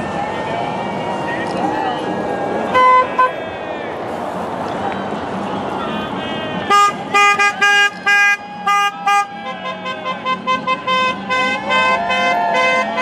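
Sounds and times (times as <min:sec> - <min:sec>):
golf cart horns tooting: 0:02.7 - 0:03.4, 0:05.8 - 0:13.0.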